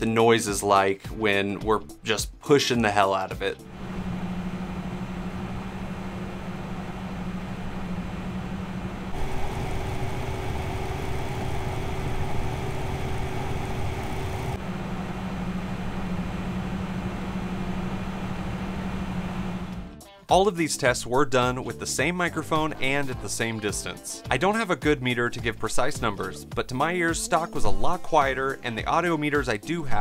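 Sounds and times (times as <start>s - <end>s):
cpu cooler fans humming: 3.6s - 19.9s
liquid cooler fans and pump: 3.7s - 19.9s.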